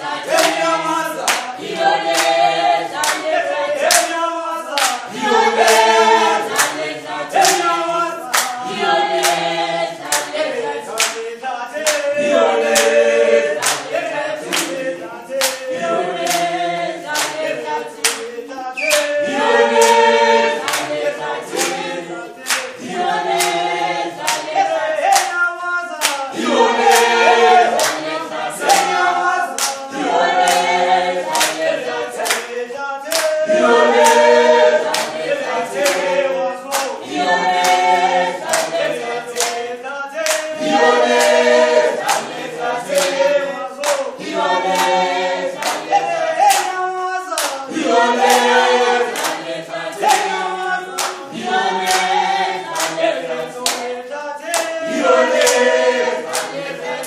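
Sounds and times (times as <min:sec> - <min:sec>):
group singing: 0:00.0 - 0:57.0
hand-clapping: 0:00.0 - 0:57.0.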